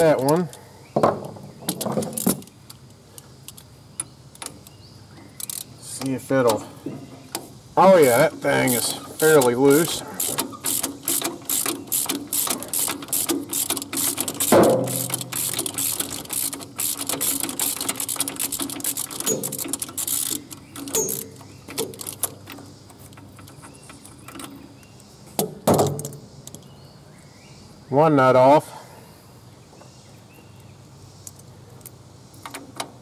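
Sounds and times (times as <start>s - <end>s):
socket ratchet clicking: 8.7s - 24.4s.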